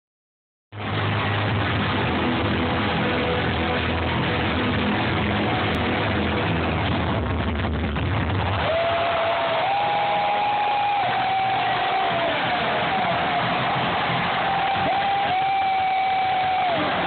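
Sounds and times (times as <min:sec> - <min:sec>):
sound system droning rumble: 0:00.8 - 0:08.6
crowd din: 0:08.2 - 0:17.0.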